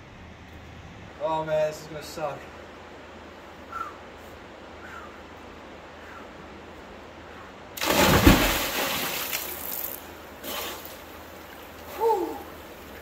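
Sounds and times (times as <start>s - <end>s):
person splashing into water: 7.8s - 10.9s
water churning: 7.8s - 10.9s.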